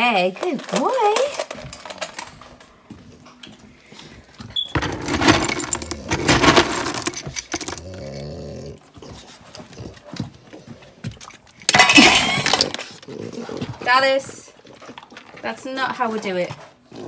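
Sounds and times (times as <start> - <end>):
kibble poured into metal bowl: 4.8 - 8.1
mug scooping dry kibble: 4.8 - 8.2.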